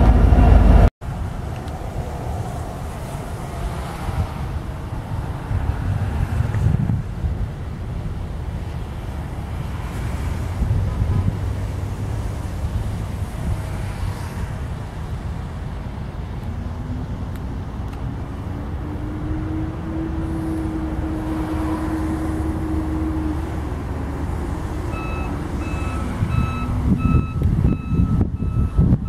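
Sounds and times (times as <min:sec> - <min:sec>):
diesel locomotive engines rumbling: 0:00.0 - 0:29.0
humming engine tone: 0:15.9 - 0:29.0.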